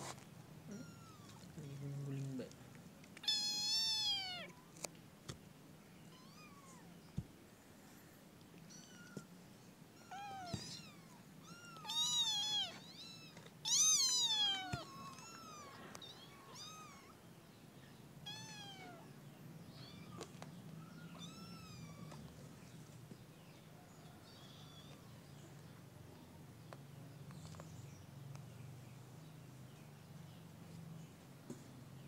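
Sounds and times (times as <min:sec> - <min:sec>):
kittens mewing: 0:00.6 - 0:01.6, 0:03.2 - 0:04.6, 0:06.1 - 0:07.0, 0:10.0 - 0:17.2.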